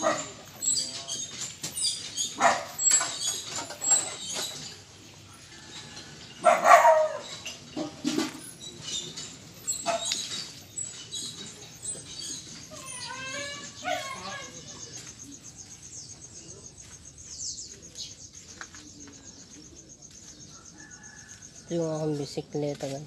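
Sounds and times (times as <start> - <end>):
dog barking: 0.0 - 0.4, 2.4 - 3.2, 6.4 - 7.9, 9.8 - 10.2, 13.8 - 14.2.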